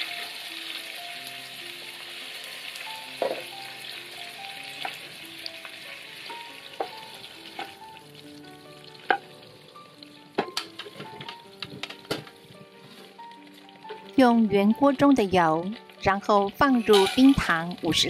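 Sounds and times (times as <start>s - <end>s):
meat sizzling in hot oil: 0.0s - 18.0s
metal tongs tapping pan: 10.4s - 12.4s, 16.5s - 17.6s.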